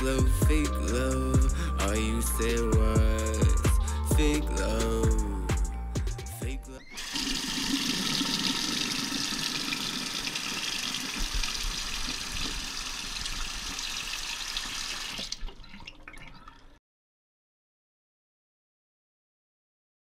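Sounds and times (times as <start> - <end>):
faucet water splashing into basin: 7.0 - 16.8.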